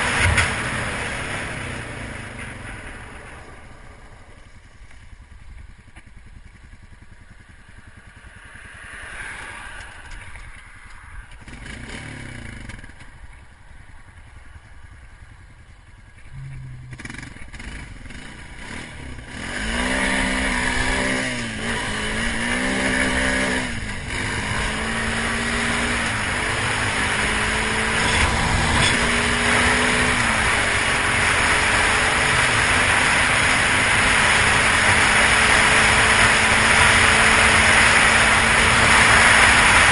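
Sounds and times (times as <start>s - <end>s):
quad bike engine: 0.0s - 39.9s
car passing: 7.0s - 12.6s.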